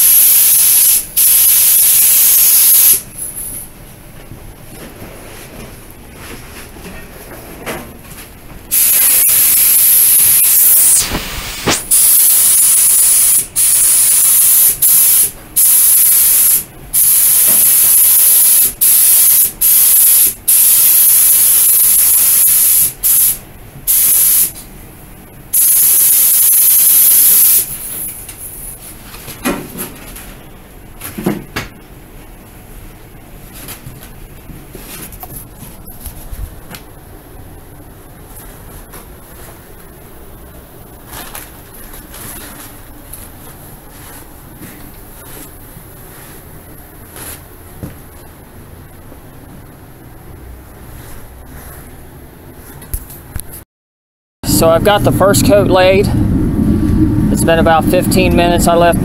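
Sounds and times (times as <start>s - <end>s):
paint spray gun hissing: 8.7s - 24.5s.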